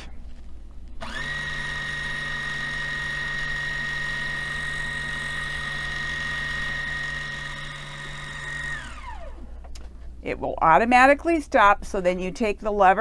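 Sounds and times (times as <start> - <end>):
sewing machine motor whining: 1.0 - 9.5.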